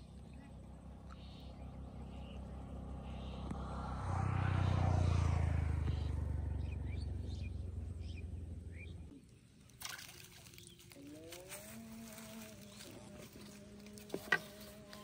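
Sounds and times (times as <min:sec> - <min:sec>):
vehicle engine passing by: 0:00.3 - 0:09.1
bird chirps: 0:05.8 - 0:09.2.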